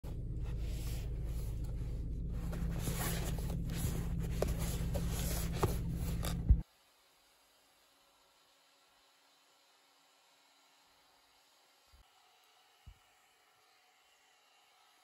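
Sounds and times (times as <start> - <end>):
low steady hum: 0.0 - 6.6
cardboard box rustling and sliding: 2.3 - 6.6.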